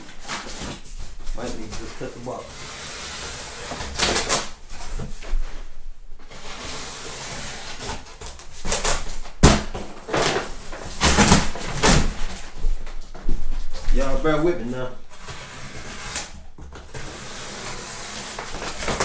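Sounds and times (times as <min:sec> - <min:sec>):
cardboard box scraping and rustling: 0:15.1 - 0:19.0.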